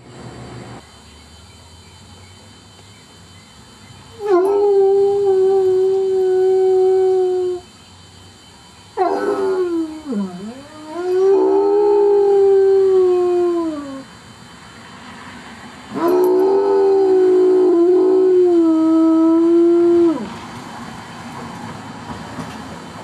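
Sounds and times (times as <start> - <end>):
hound dog howling: 4.2 - 7.6, 9.0 - 14.0, 16.0 - 20.3.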